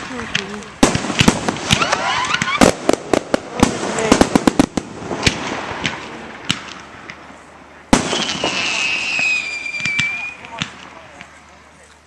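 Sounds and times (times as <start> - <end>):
fireworks popping and banging: 0.0 - 12.0
firework whistle gliding down: 8.2 - 10.5.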